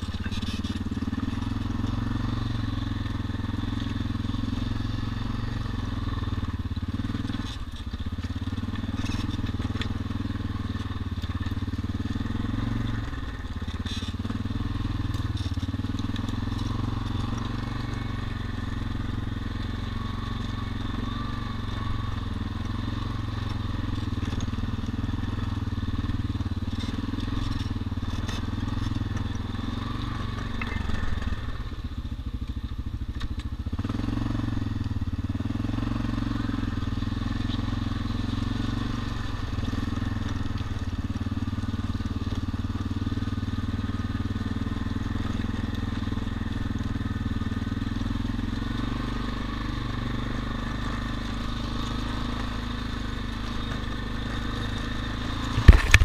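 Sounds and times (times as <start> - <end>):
atv engine running: 0.0 - 56.0
tyres crunching on gravel: 0.0 - 56.0.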